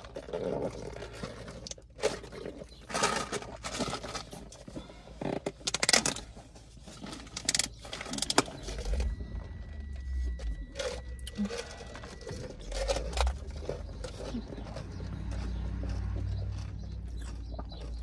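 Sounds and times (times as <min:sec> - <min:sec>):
low rumble: 0:07.9 - 0:18.0.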